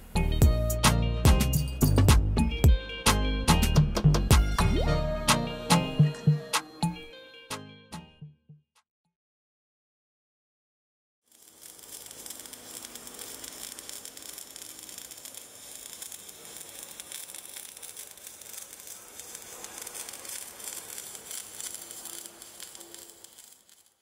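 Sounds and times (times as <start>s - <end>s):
welding arc crackling: 11.3s - 24.0s.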